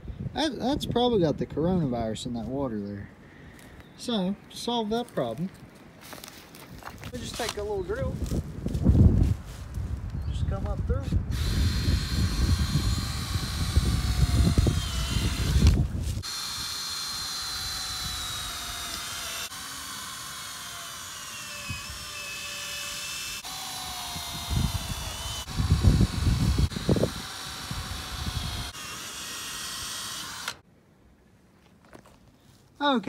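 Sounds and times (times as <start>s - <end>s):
cordless drill boring rubber: 11.1s - 30.6s.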